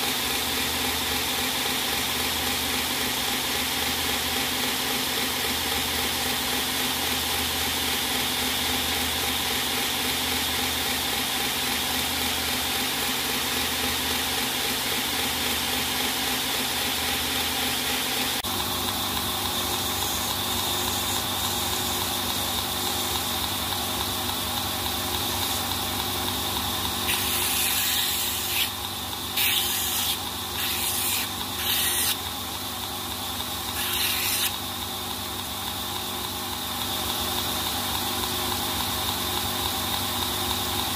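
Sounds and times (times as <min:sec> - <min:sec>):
belt grinder running: 0:12.2 - 0:36.0
metal grinding hiss: 0:27.1 - 0:28.8, 0:29.4 - 0:32.2, 0:33.8 - 0:34.5.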